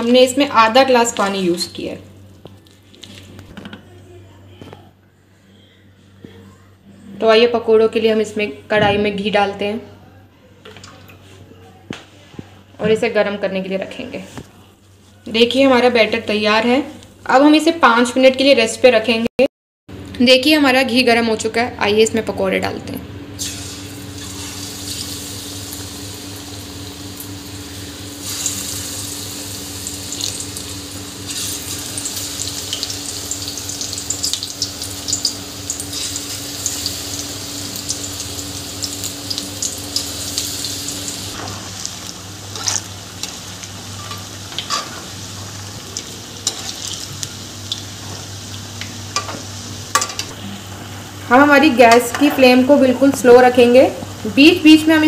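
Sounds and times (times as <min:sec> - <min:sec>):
batter deep-frying sizzle: 0:23.4 - 0:50.0.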